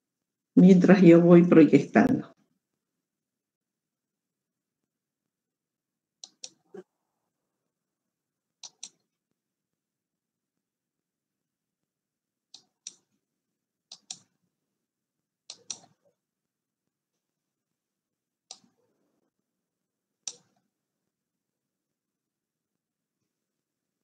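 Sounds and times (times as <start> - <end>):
computer mouse clicks: 6.2 - 6.6, 8.6 - 9.1, 12.5 - 13.1, 13.9 - 14.4, 15.5 - 16.1, 18.5 - 18.8, 20.2 - 20.7.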